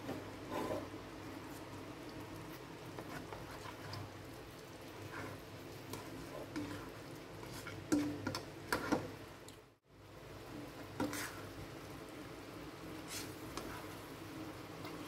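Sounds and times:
spatula tapping and scraping wok: 0:02.9 - 0:04.1, 0:05.0 - 0:09.2, 0:10.5 - 0:11.6.

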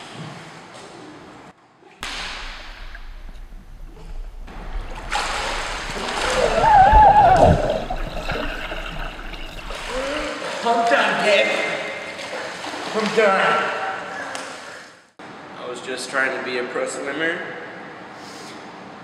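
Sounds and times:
pool water splashing: 0:02.0 - 0:15.0.

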